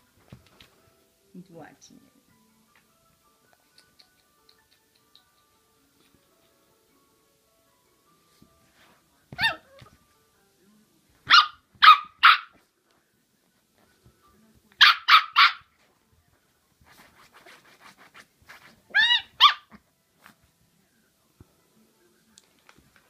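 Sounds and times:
puppy yapping: 0:09.4 - 0:09.8, 0:11.3 - 0:12.6, 0:14.8 - 0:15.7, 0:18.9 - 0:19.8.

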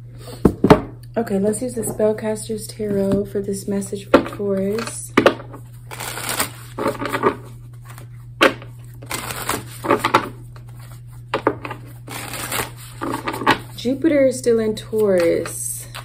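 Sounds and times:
low electrical hum: 0:00.0 - 0:16.0
cards shuffling: 0:05.6 - 0:13.9, 0:14.9 - 0:16.0.

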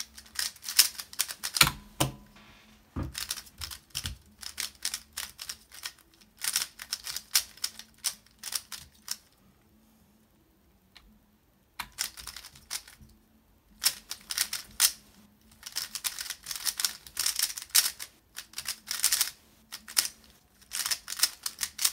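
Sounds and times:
puzzle cube clicking while turned: 0:00.0 - 0:01.7, 0:03.1 - 0:09.3, 0:11.8 - 0:13.0, 0:13.8 - 0:21.9.

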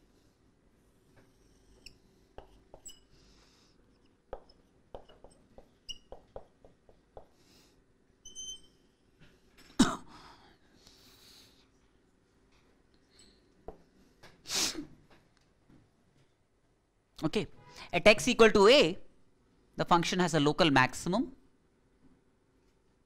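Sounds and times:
marker squeaking on whiteboard: 0:01.4 - 0:03.1, 0:04.4 - 0:06.7, 0:08.3 - 0:08.8.

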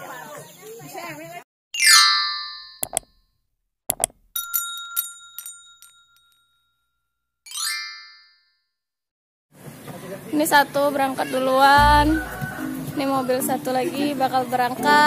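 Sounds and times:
bright bell-like dings: 0:01.8 - 0:02.9, 0:04.4 - 0:08.4
sharp clicks: 0:02.8 - 0:03.1, 0:03.9 - 0:04.3.

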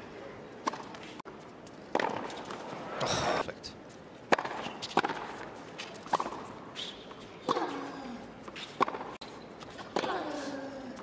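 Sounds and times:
tennis ball struck by racquets: 0:00.6 - 0:01.0, 0:01.9 - 0:02.6, 0:04.3 - 0:06.5, 0:08.7 - 0:09.2.

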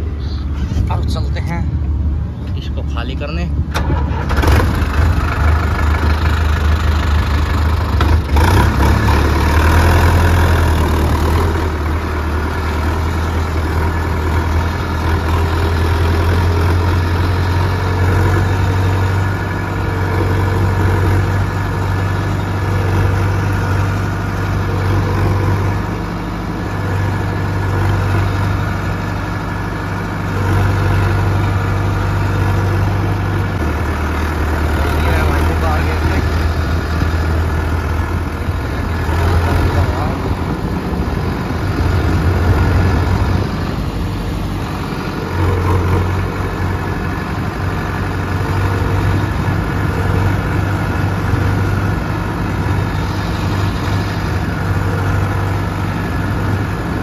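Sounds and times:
tractor diesel engine drone: 0:00.0 - 0:57.0.

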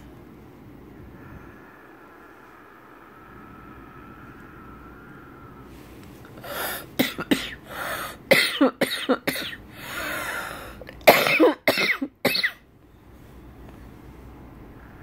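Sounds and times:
wheezy breath: 0:01.0 - 0:08.3, 0:09.7 - 0:10.9
person coughing: 0:06.4 - 0:12.6.

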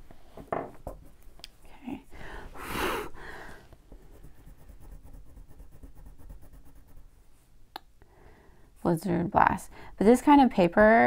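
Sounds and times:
crayon scratching on paper: 0:04.0 - 0:07.2.

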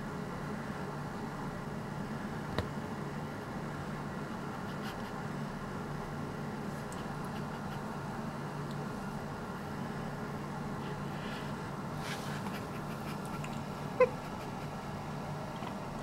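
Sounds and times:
steady low hum: 0:00.0 - 0:16.0
dog whimpering: 0:12.7 - 0:14.6.

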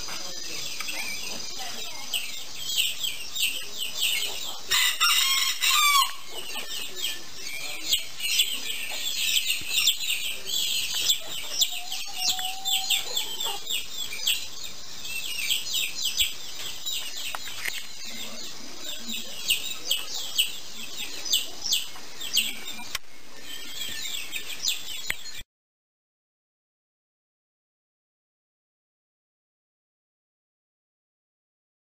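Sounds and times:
birds chirping: 0:00.0 - 0:25.4.

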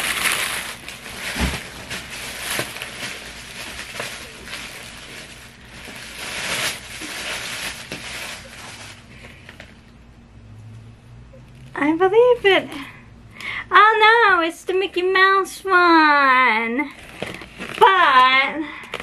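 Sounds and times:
plastic bag crinkling: 0:00.0 - 0:09.8, 0:16.9 - 0:19.0.

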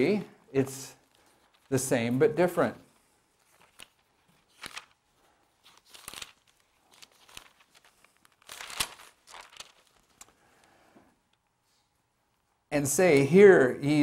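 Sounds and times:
pages turning and rustling: 0:03.0 - 0:10.7.

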